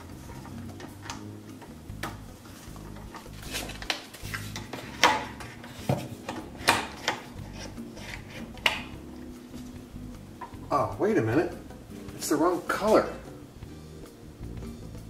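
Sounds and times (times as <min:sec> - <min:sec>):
plastic clips snapping into place: 0:06.3 - 0:07.3, 0:08.6 - 0:09.0.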